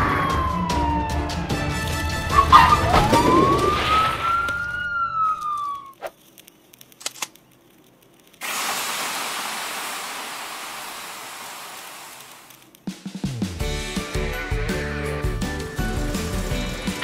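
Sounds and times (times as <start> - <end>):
siren winding down: 0.0 - 6.0
sharp clicks: 5.4 - 8.4, 12.2 - 12.9
fire hose spraying hiss: 8.4 - 12.6.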